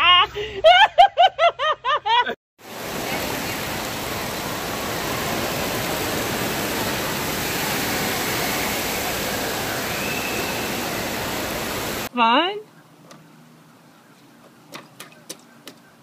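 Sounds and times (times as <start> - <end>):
running water rushing: 2.6 - 12.1.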